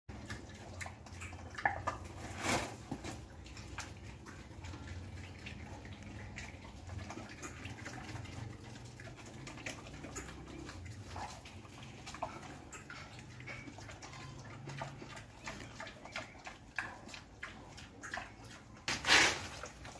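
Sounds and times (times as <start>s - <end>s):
boar chewing wetly: 0.1s - 19.9s.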